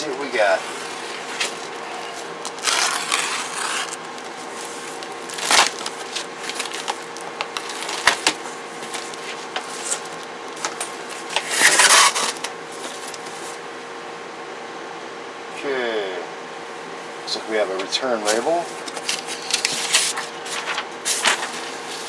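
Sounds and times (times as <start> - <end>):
cardboard scraping and crackling: 0.5 - 13.6, 18.3 - 22.0.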